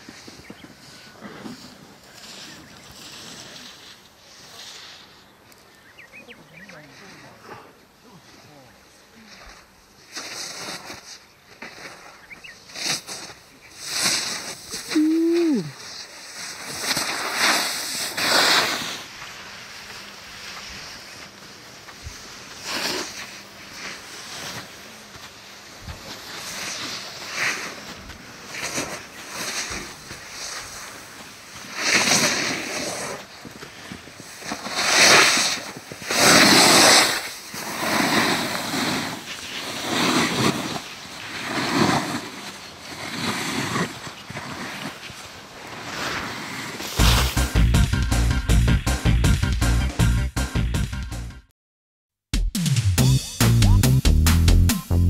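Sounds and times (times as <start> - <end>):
snowboard scraping over snow: 0.0 - 5.4, 6.7 - 49.0.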